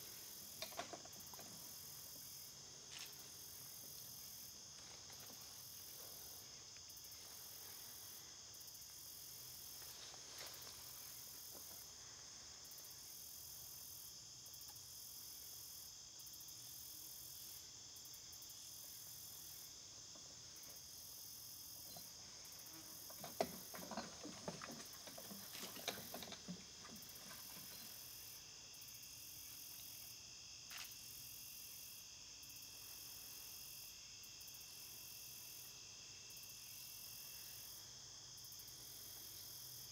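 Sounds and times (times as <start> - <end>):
crickets and insects chirping: 0.0 - 39.9
pulsing insect trill: 0.0 - 39.9
irregular clicks and rustles: 0.1 - 2.0, 4.7 - 6.2, 21.9 - 28.1.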